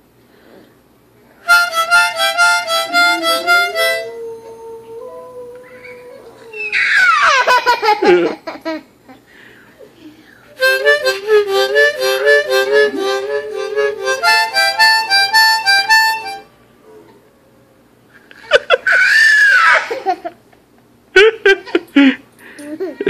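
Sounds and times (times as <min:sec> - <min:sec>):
harmonica playing: 0:01.4 - 0:04.3, 0:10.6 - 0:16.5.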